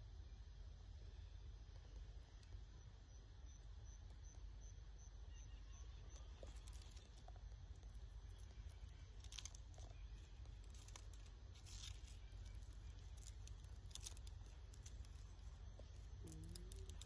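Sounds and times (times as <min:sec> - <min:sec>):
steady low rumble: 0:00.0 - 0:17.0
soft crackling ticks: 0:06.1 - 0:17.0.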